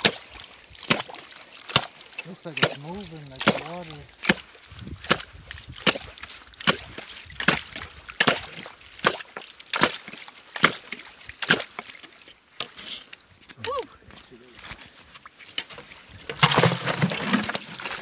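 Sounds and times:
ice chisel chopping slushy ice: 0.0s - 11.8s, 16.4s - 18.0s.

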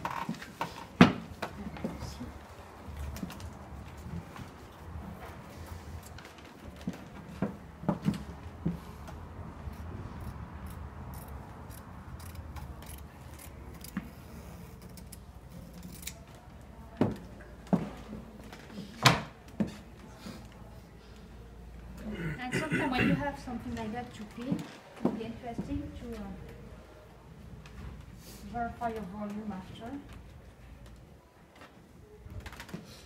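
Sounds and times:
scissors clicking and snipping: 10.2s - 14.0s.

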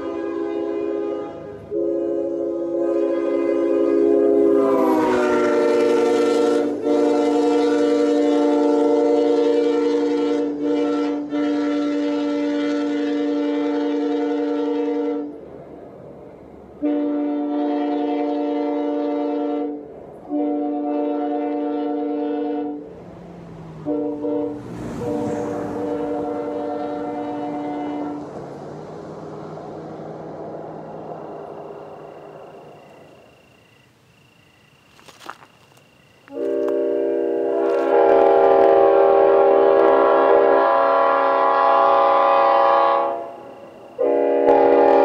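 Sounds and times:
train horn chord blasts: 0.0s - 15.4s, 16.8s - 22.9s, 23.7s - 28.6s, 36.3s - 45.0s.

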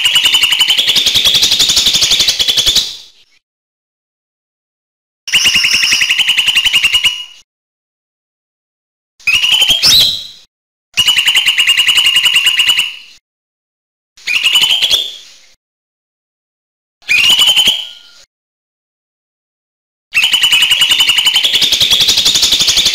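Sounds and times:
bird calling in fast trills: 0.0s - 3.0s, 5.3s - 7.4s, 9.2s - 13.2s, 14.2s - 15.2s, 17.0s - 18.3s, 20.1s - 22.9s.

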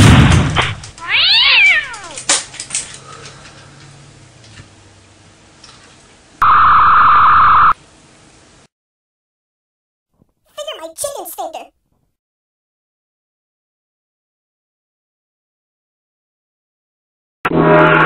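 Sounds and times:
shotgun blast: 0.0s - 0.8s
cat meowing: 1.0s - 2.2s.

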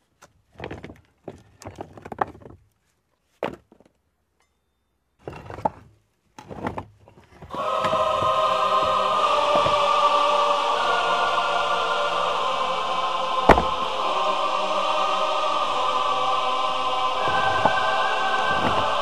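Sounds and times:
choral music with sustained voices: 7.5s - 19.0s.

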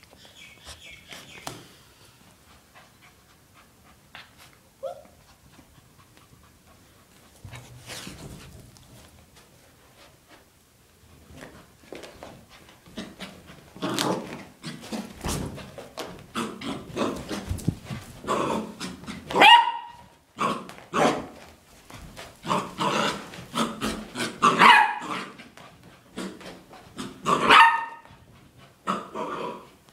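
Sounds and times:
puppy barking: 19.3s - 21.2s, 24.4s - 25.2s, 27.3s - 28.1s.

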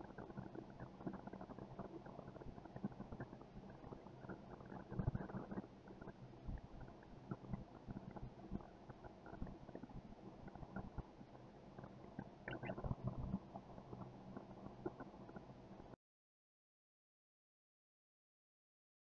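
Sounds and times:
soft thumps and ticks: 0.0s - 15.5s
low steady hum: 0.0s - 16.0s.

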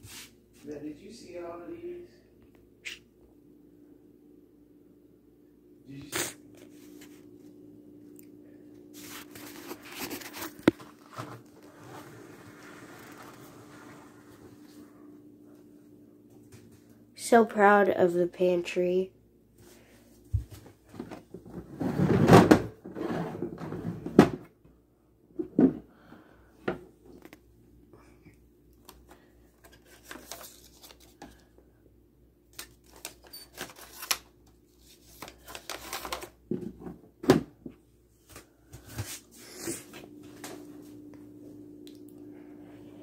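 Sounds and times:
faint steady hum: 0.3s - 21.8s, 22.4s - 43.0s
packets and bins handled on shelving: 9.0s - 13.5s, 32.5s - 39.3s.

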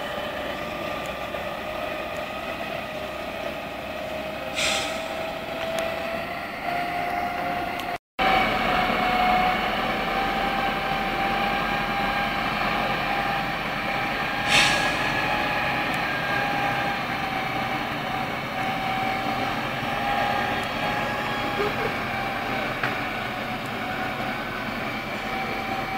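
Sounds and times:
diesel engine running under load: 0.0s - 25.9s
short hiss: 4.6s - 5.2s, 14.4s - 15.0s.

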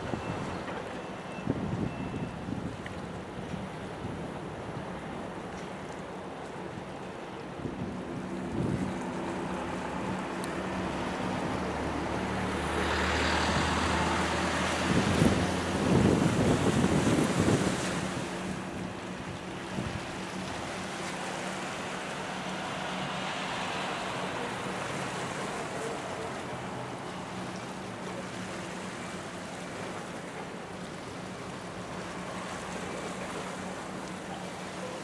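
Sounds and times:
water washing against shore: 0.0s - 35.0s
wind buffeting microphone: 13.6s - 18.6s.

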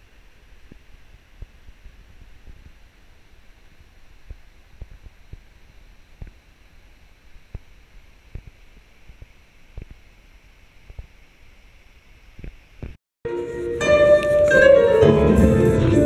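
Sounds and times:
low steady hiss: 0.0s - 13.0s
live jazz orchestra playing: 13.3s - 16.0s.

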